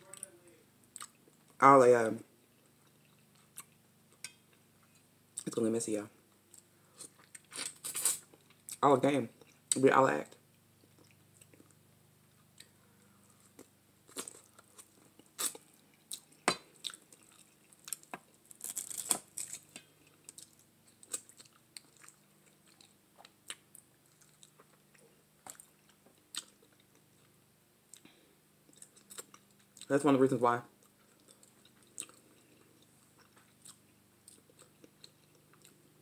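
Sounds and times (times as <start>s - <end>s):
person chewing meat: 6.5s - 8.8s, 12.4s - 29.9s, 30.8s - 36.0s.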